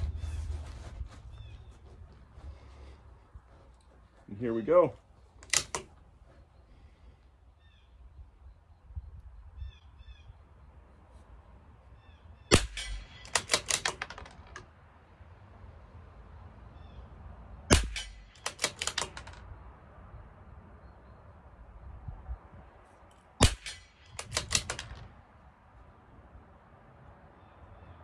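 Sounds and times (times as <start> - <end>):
rifle bolt clicks: 5.4 - 5.9, 12.6 - 14.6, 17.7 - 19.4, 23.1 - 25.1
faint bird chirps: 6.3 - 10.9
rifle shots: 12.5 - 14.3, 17.7 - 19.4, 23.4 - 25.0.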